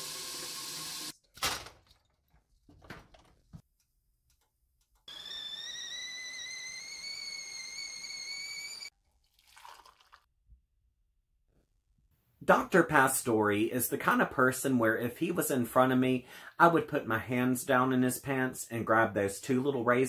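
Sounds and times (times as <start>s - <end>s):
tap water running into kettle: 0.0s - 1.1s, 9.4s - 10.2s
kettle whistling: 5.1s - 8.9s
hot water poured into mug: 9.2s - 10.3s.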